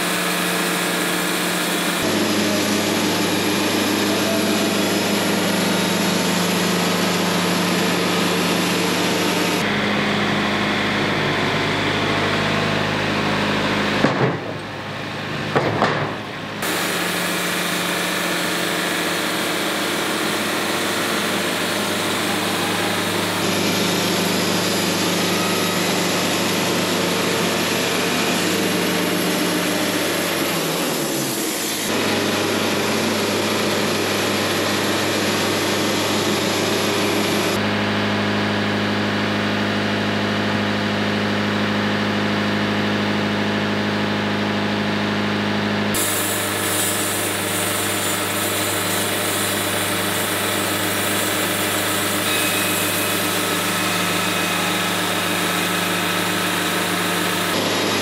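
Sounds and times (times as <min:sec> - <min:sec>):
bandsaw cutting through log: 0:00.0 - 0:12.6, 0:16.6 - 0:37.6, 0:45.9 - 0:58.0.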